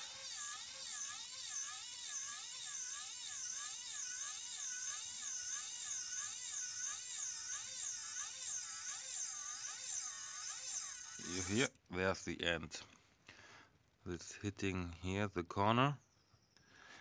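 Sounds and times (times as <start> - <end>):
small gear motor whining: 0.0 - 11.7.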